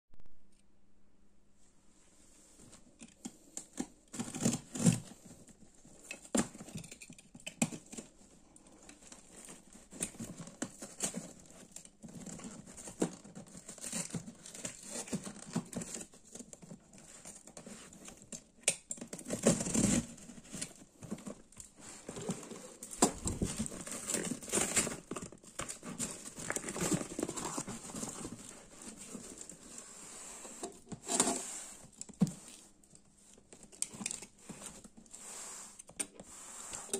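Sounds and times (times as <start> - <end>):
scratches: 4.2 - 36.9
plastic wrap crinkling and tearing: 7.8 - 29.9.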